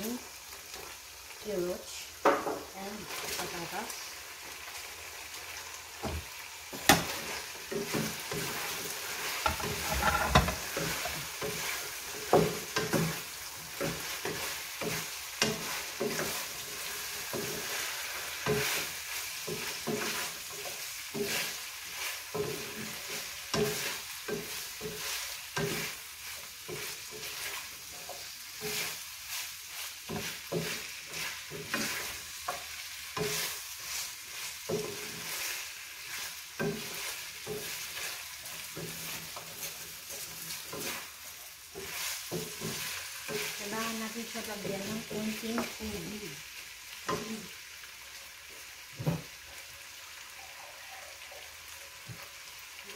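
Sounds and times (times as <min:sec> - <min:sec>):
vegetables sizzling in a frying pan: 0:00.0 - 0:52.9
wooden spatula scraping: 0:06.0 - 0:46.0.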